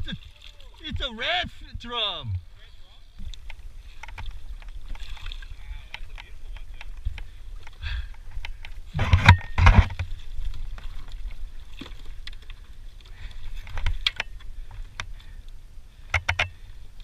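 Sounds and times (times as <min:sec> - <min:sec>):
net and gear clicking on kayak: 0:03.2 - 0:16.6.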